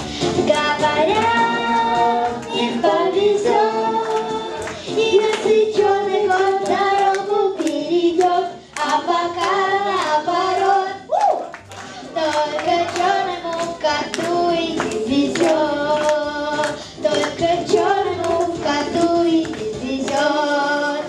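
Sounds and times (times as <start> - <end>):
acoustic guitar: 0.0 - 6.5
girl singing: 0.4 - 11.1, 12.1 - 21.0.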